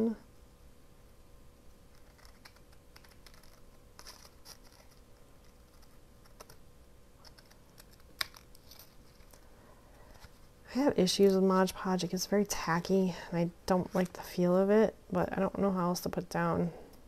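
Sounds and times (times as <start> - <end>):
scissors snipping paper: 1.9 - 6.6.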